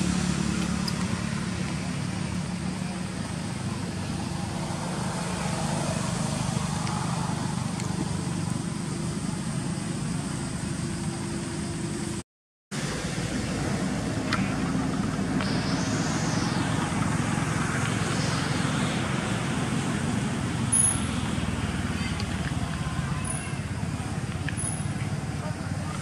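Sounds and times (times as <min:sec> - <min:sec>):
distant traffic rumble: 0:00.0 - 0:12.2, 0:12.8 - 0:26.0
hiss: 0:12.8 - 0:26.0.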